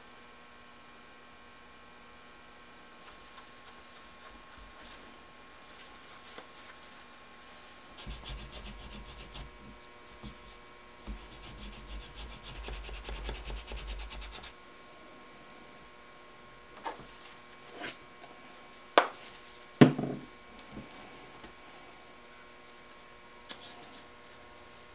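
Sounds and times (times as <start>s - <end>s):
hand tool rubbing on leather: 8.0s - 14.5s.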